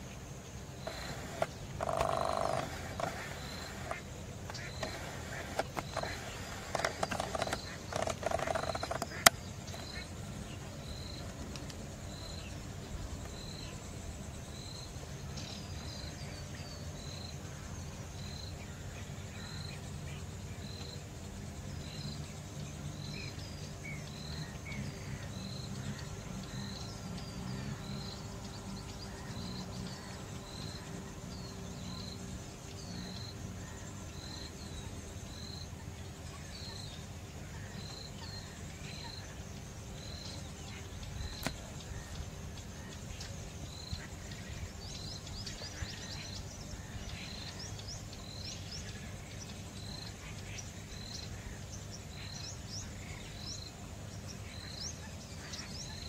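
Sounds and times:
bird chirps: 0.8s - 10.1s.

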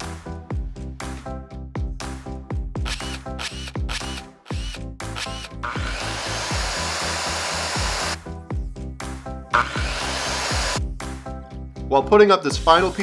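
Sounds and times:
background music with steady beat: 0.0s - 13.0s
power tool running: 2.9s - 8.2s, 9.5s - 10.8s.

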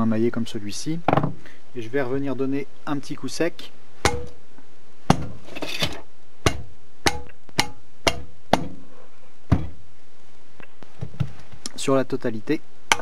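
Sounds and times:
rubber mallet knocking on metal: 4.0s - 4.4s, 6.4s - 8.8s, 9.5s - 9.7s.

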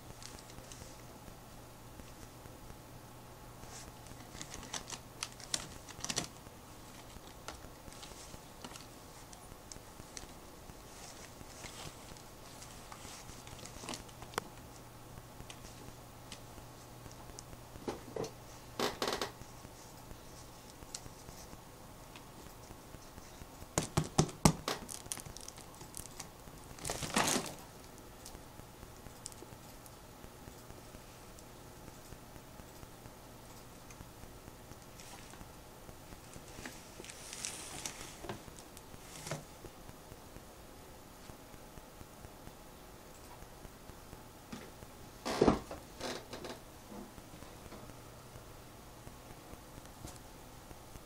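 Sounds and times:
claws scrabbling on plastic: 3.6s - 14.7s
plastic bottles crinkling: 3.7s - 9.3s, 23.8s - 27.6s.

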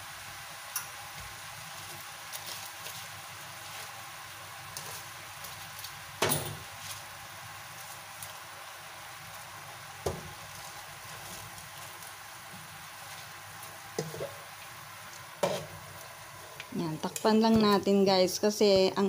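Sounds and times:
mushrooms sizzling in frying pan: 0.0s - 19.0s.

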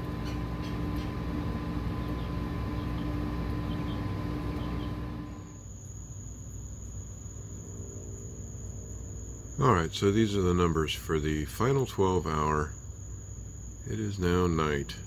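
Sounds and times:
refrigerator compressor humming: 0.0s - 5.8s
crickets trilling: 0.0s - 15.0s.

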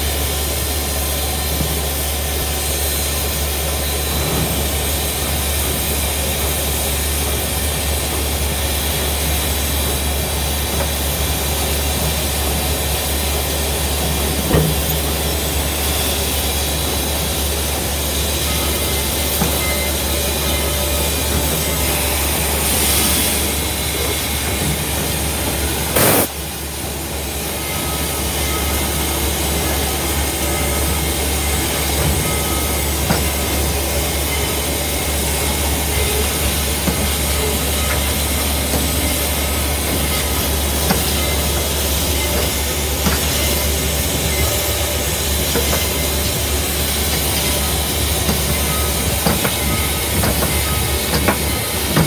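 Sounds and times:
steam locomotive cab rumble and hiss: 0.0s - 52.0s
brief loud burst of noise: 26.0s - 26.4s.

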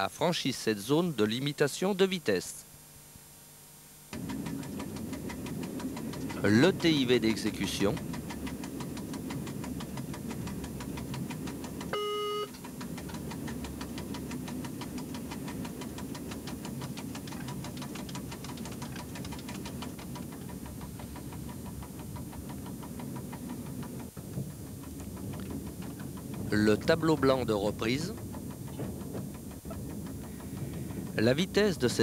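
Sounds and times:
train cab running noise: 4.1s - 32.0s
short electronic beep: 12.0s - 12.6s.

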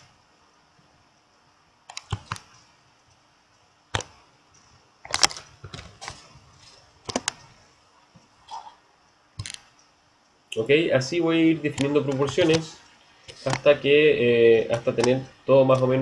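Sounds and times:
computer mouse clicks: 1.9s - 3.2s, 11.7s - 12.7s.

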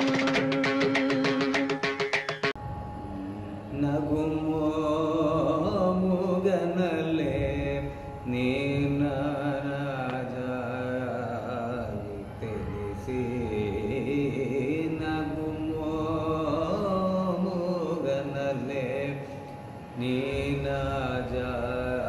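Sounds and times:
man singing unaccompanied: 0.0s - 2.0s, 3.1s - 22.0s.

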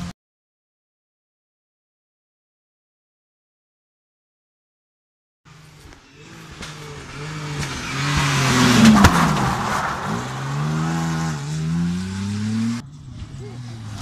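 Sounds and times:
rally car engine revving: 5.5s - 14.0s
sharp crack: 5.9s - 14.0s.

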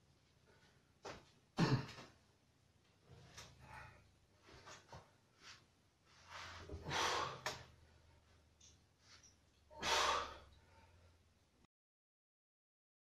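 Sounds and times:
man exhaling forcefully: 6.8s - 7.6s, 9.8s - 10.5s.

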